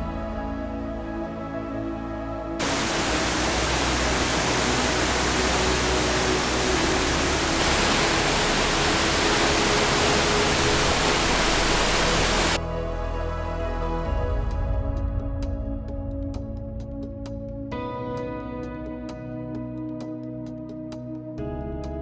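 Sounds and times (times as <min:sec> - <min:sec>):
waterfall roaring: 0:02.6 - 0:12.6.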